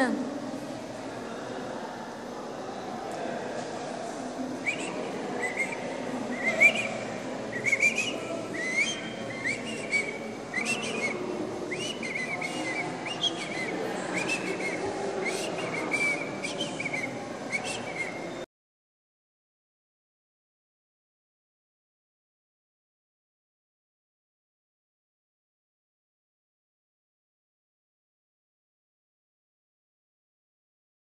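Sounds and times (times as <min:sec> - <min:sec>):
low background murmur: 0:00.0 - 0:18.5
whistling short chirping notes: 0:04.6 - 0:18.4.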